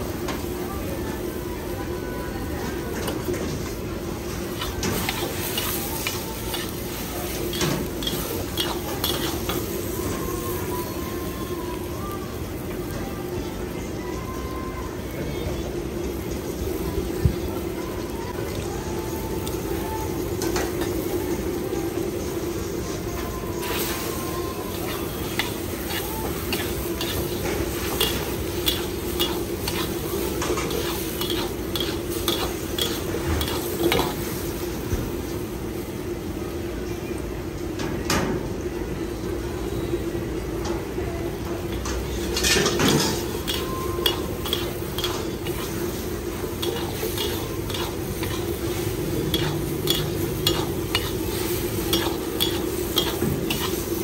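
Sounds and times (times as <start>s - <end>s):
food sizzling: 0.0s - 36.8s, 40.9s - 54.0s
gas burner hum: 0.0s - 54.0s
metal ladle scraping a wok: 42.2s - 54.0s.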